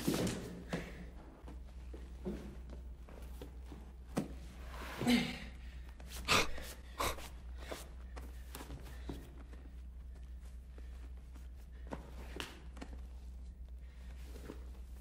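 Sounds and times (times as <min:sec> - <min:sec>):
steady low hum: 0:00.0 - 0:15.0
man gasping for breath: 0:05.0 - 0:07.9.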